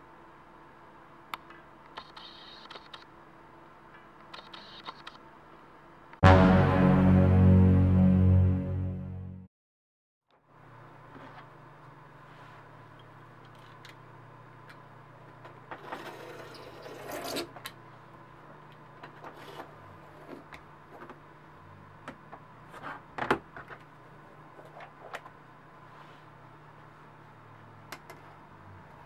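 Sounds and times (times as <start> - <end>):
low hum: 6.2 - 9.5.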